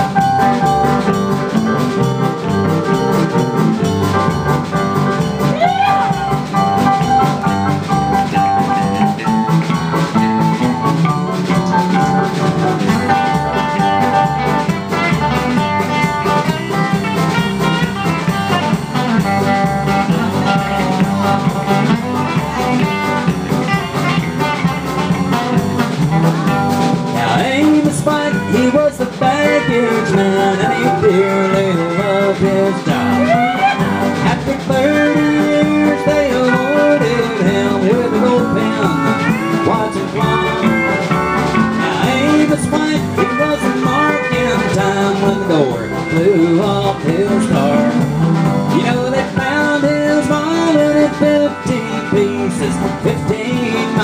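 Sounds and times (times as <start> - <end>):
country-rock band playing: 0.0 - 54.0.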